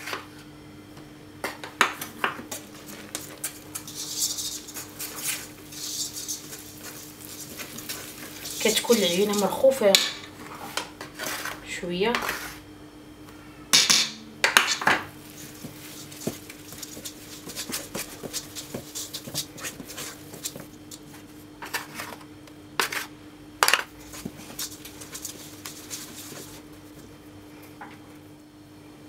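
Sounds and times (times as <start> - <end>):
utensils scraping a steel bowl: 3.6 - 9.8, 15.4 - 20.6.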